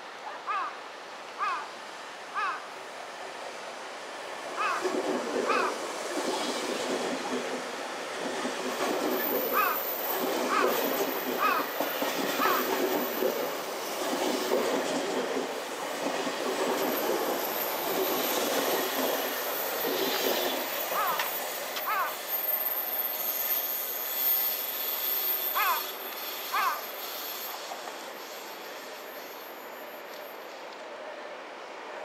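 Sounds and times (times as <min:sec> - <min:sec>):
train wheels rumbling on rail: 0:02.9 - 0:32.0
high wheel squeals: 0:16.7 - 0:30.8.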